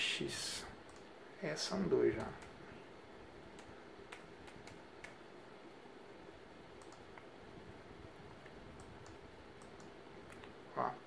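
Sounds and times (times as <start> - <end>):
room hiss: 0.0 - 11.0
computer mouse clicking: 0.8 - 1.1, 2.2 - 2.6, 3.5 - 5.2, 6.8 - 7.3, 8.4 - 10.6.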